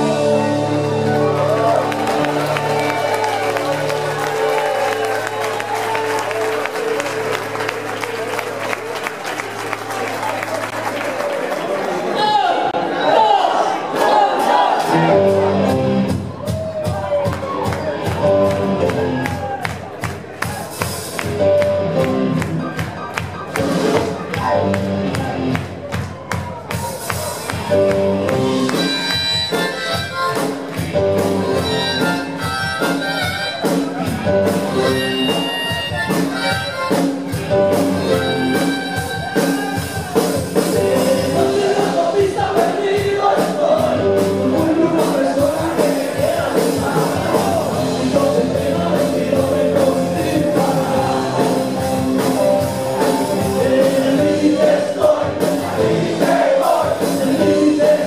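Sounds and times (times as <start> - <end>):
rock band playing live: 0.0 - 10.9, 14.4 - 58.0
drums keeping steady beat: 14.4 - 58.0.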